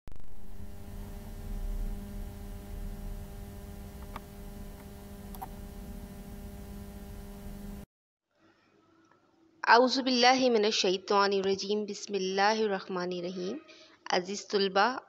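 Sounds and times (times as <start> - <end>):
electrical hum: 0.1 - 7.9
faint clicks: 3.9 - 5.6.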